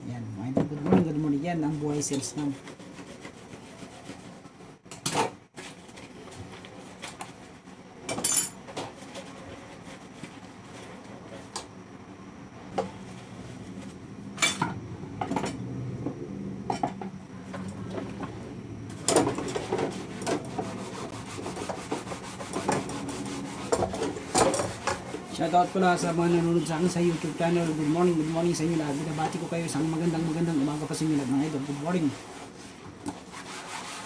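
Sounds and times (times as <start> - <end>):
scrubbing dishes: 17.9 - 34.0.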